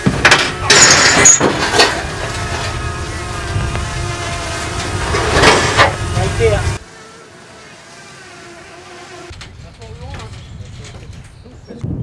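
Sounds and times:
metal ramp clattering and scraping: 0:00.0 - 0:02.8, 0:04.6 - 0:06.2.

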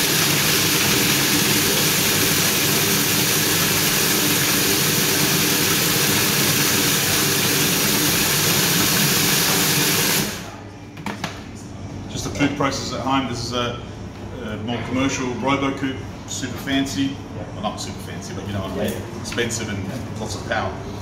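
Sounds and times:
food processor motor whirring: 0:00.0 - 0:10.5.

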